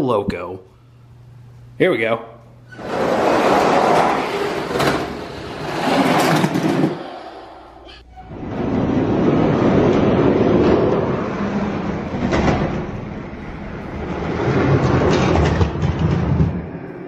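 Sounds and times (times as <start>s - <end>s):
toy trucks rumbling on plastic track: 2.8s - 7.7s, 14.0s - 16.7s.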